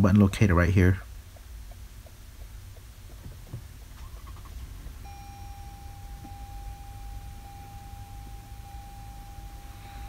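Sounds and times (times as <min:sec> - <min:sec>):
car engine low rumble: 0:01.1 - 0:10.0
steady electronic tone: 0:05.0 - 0:10.0.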